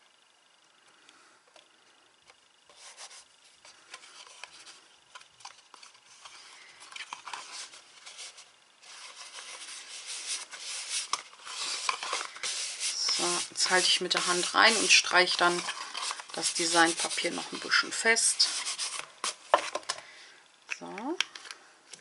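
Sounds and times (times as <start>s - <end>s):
paper rustling and rubbing: 2.7s - 19.8s.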